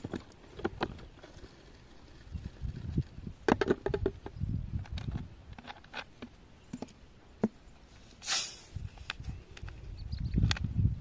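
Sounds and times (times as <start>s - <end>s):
plastic bottles knocking and scraping: 0.0s - 7.6s
short hiss: 8.0s - 8.9s.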